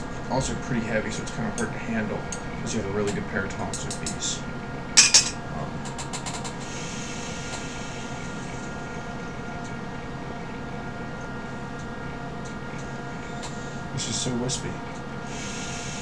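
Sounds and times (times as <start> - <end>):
electrical hum: 0.0 - 16.0.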